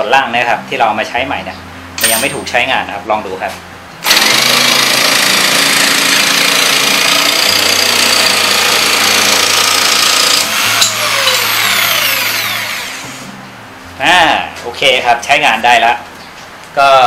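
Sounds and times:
jigsaw cutting board: 0:04.1 - 0:13.1
motor winding down whine: 0:10.2 - 0:13.3.

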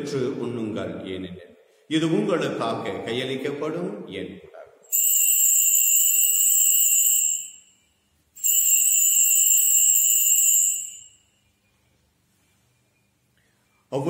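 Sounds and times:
altar bells ringing: 0:04.9 - 0:11.8.

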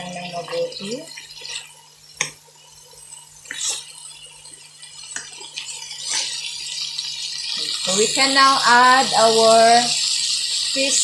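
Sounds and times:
food sizzling: 0:00.0 - 0:11.0
wooden spatula scraping wok: 0:06.0 - 0:06.4.

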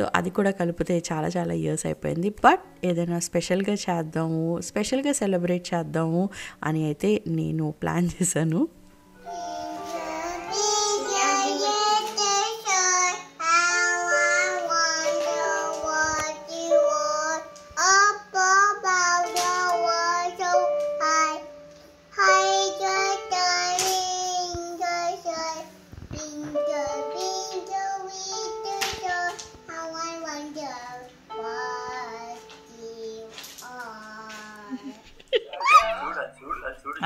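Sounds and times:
electronic keyboard notes: 0:08.9 - 0:24.0, 0:26.2 - 0:30.4, 0:31.3 - 0:33.3
toddler singing: 0:09.3 - 0:21.5, 0:22.1 - 0:35.0.

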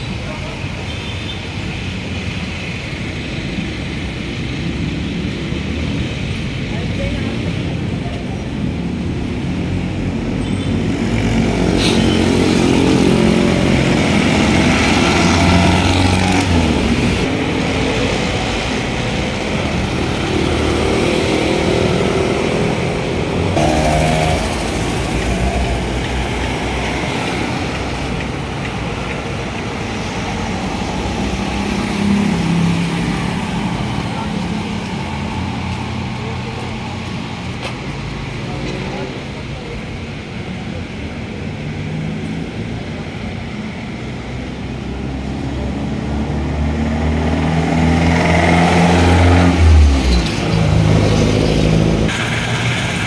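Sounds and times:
cars and motorcycles passing: 0:00.0 - 0:53.0
rumble of tyres and traffic: 0:00.0 - 0:53.0.

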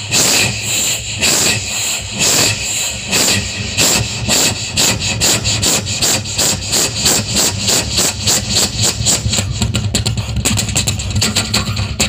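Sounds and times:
man imitating steam locomotive chuffs: 0:00.0 - 0:12.0.

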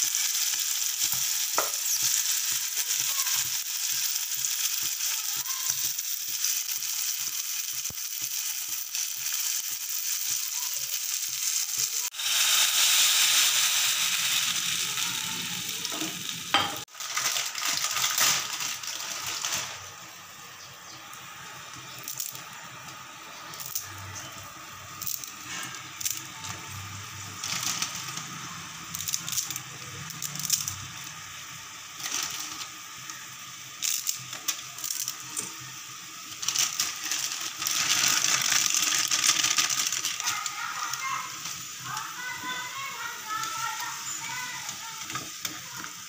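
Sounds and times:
bubbling liquid hissing: 0:00.0 - 0:46.0
dry noodles crackling: 0:16.9 - 0:20.2, 0:21.5 - 0:31.2, 0:31.9 - 0:33.1, 0:36.2 - 0:46.0.

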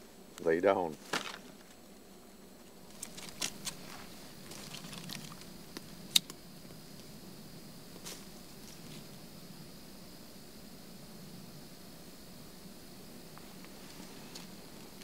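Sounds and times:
twigs rustling: 0:00.9 - 0:01.8, 0:02.8 - 0:05.5.

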